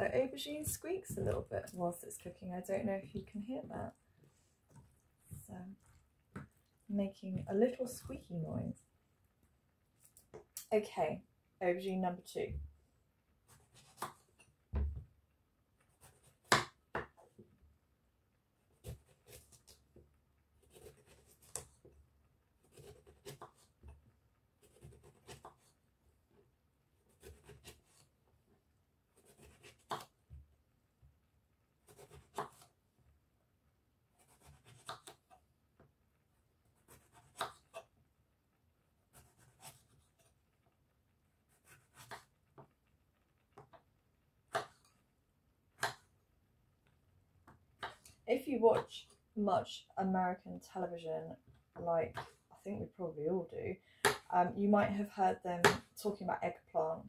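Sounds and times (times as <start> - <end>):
knife slicing on wooden board: 41.6 - 42.3.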